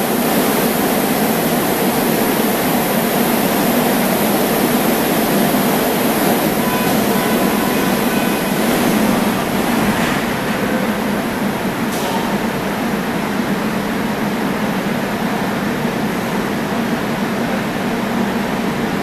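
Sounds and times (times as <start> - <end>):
train doors closing: 0.0 - 18.9
electric train hum and hiss: 0.0 - 19.0
train departing: 0.0 - 19.0
short warning tones: 6.5 - 8.9.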